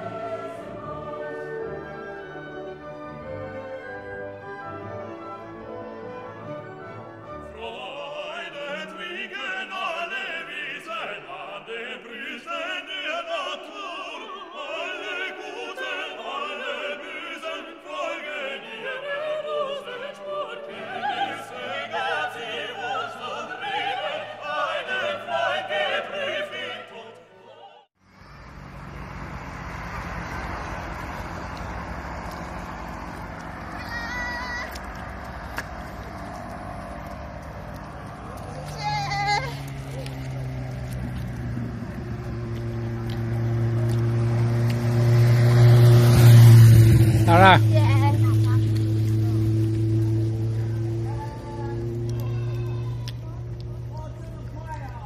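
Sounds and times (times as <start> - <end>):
operatic singing with orchestra: 0.0 - 6.1, 6.8 - 28.0
orchestral music: 0.0 - 27.1.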